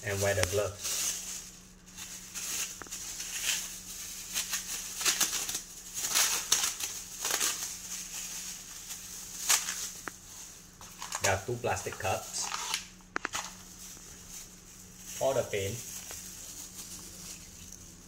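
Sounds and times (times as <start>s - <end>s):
plastic gloves rustling: 0.0s - 18.0s.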